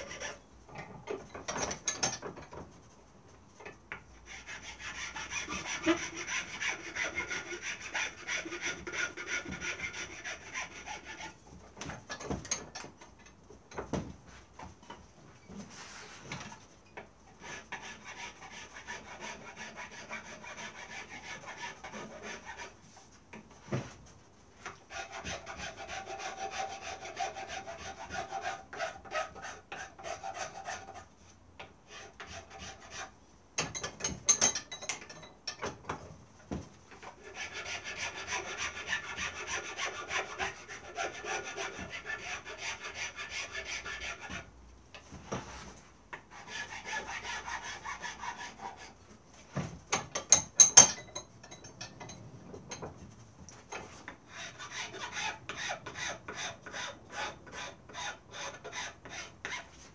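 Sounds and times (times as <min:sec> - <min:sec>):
file rubbing on wood: 0:00.0 - 0:00.4, 0:04.2 - 0:11.4, 0:17.4 - 0:22.9, 0:24.6 - 0:31.1, 0:31.9 - 0:33.2, 0:37.0 - 0:44.5, 0:45.4 - 0:49.5, 0:53.7 - 0:59.9.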